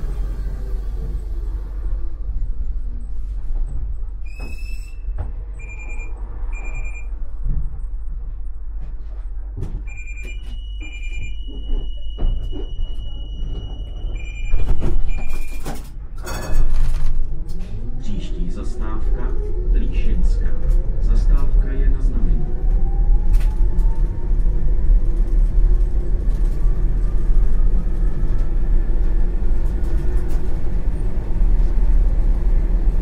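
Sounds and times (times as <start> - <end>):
short electronic beeps: 5.6 - 7.1, 9.9 - 15.6.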